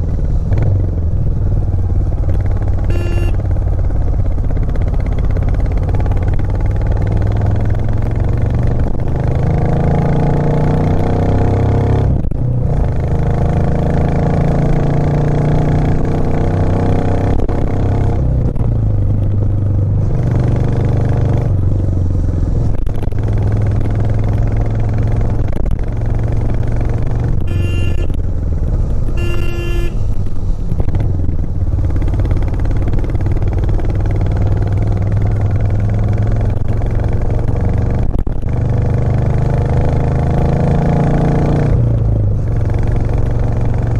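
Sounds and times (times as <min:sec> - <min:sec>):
motorcycle engine under load: 0:00.0 - 0:09.8, 0:12.1 - 0:41.1
horn blasts: 0:02.8 - 0:03.5, 0:27.4 - 0:28.2, 0:29.1 - 0:30.2.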